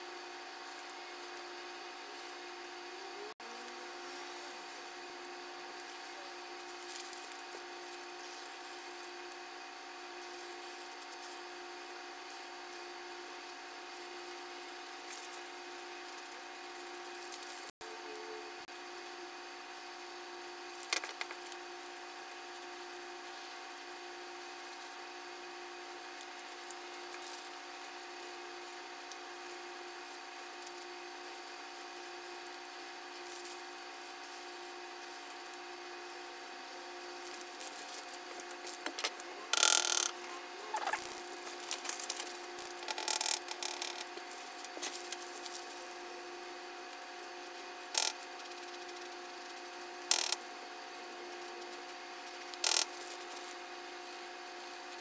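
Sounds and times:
steady hum: 0:00.0 - 0:55.0
rustles and clicks of handling: 0:37.2 - 0:46.0.

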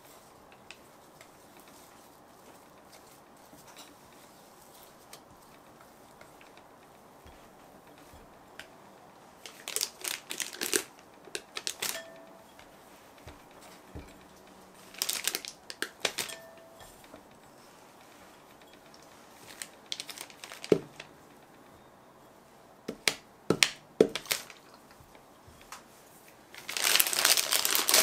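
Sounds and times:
plastic piping bag crinkling: 0:00.0 - 0:21.2, 0:22.9 - 0:25.1, 0:26.5 - 0:28.0.

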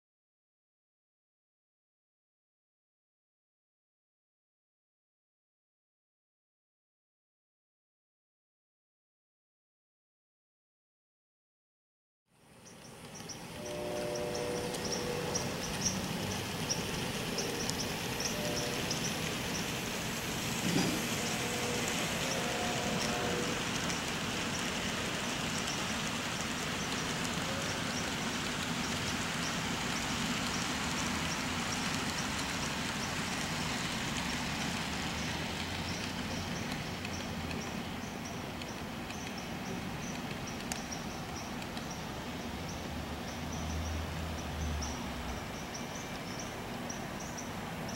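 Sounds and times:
model trains running on track: 0:12.4 - 0:47.9.

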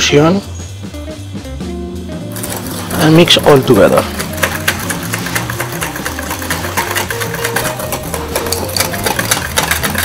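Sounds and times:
wire whisk beating in steel bowl: 0:02.4 - 0:10.0.

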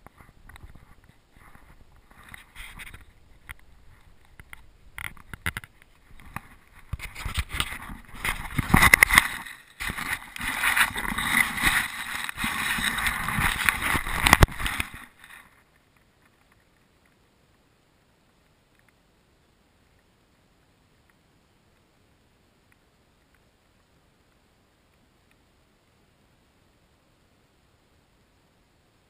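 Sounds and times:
camera housing rubbing and knocking: 0:00.0 - 0:15.4.

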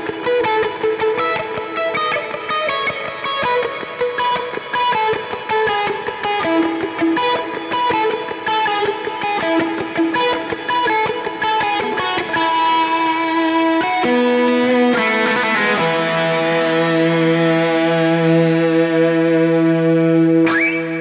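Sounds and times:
overdriven electric guitar: 0:00.0 - 0:21.0.

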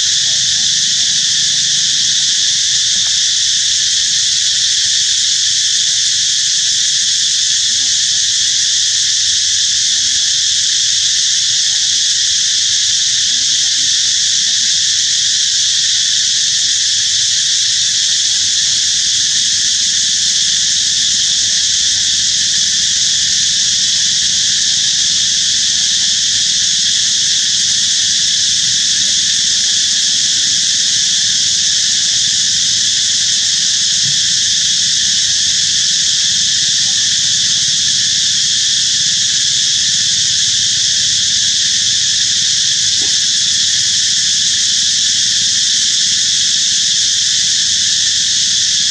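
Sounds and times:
insect chorus drone: 0:00.0 - 0:48.9.

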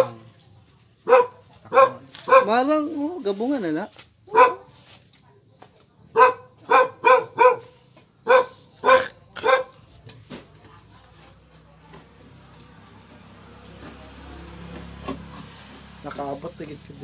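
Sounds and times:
dog barking: 0:01.0 - 0:02.7, 0:04.3 - 0:04.8, 0:06.1 - 0:09.8.

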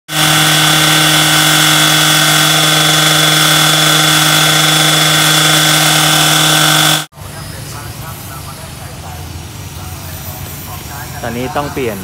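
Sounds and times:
rail saw cutting steel: 0:00.1 - 0:08.9.

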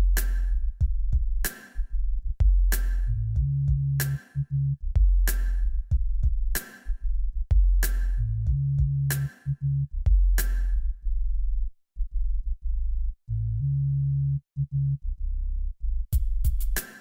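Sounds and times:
drum machine beat: 0:00.0 - 0:01.8, 0:02.4 - 0:04.4, 0:05.0 - 0:06.9, 0:07.5 - 0:09.5, 0:10.1 - 0:10.7, 0:16.2 - 0:17.0
deep bass notes: 0:00.0 - 0:16.8.

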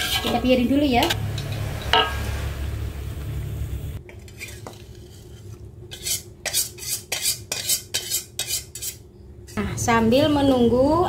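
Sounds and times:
scraping metal pan: 0:00.0 - 0:02.6, 0:04.1 - 0:09.0
wok simmering rumble: 0:00.0 - 0:08.4.

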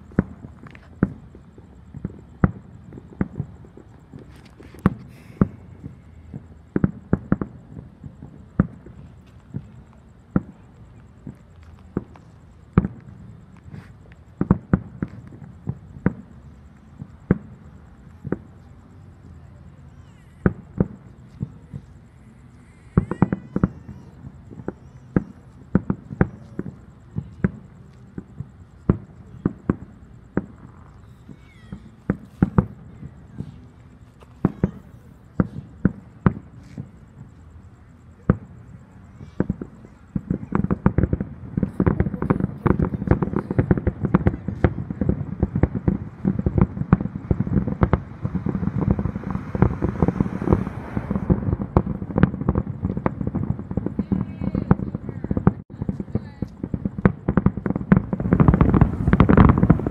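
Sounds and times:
fireworks banging: 0:00.0 - 0:59.9.

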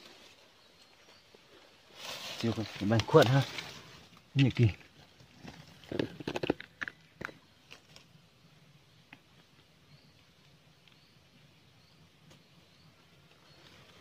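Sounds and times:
rustling on dry leaves: 0:00.0 - 0:06.0, 0:12.3 - 0:14.0.

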